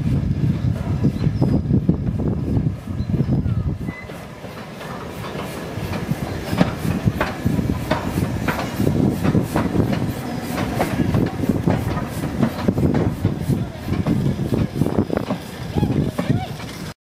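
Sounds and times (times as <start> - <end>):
steam locomotive exhaust beating: 0.0 - 17.0
wheels rumbling on rail: 0.0 - 17.0.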